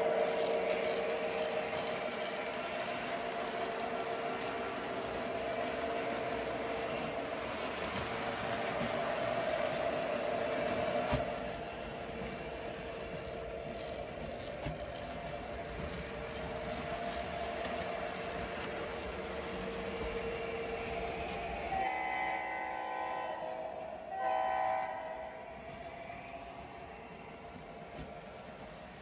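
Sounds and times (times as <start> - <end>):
model train wheels and motor humming: 0.0 - 29.0
electronic train horn: 21.7 - 25.8.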